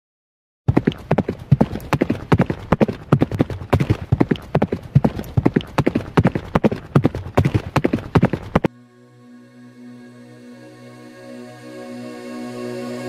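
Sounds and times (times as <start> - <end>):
galloping horse hoofbeats: 0.7 - 8.7.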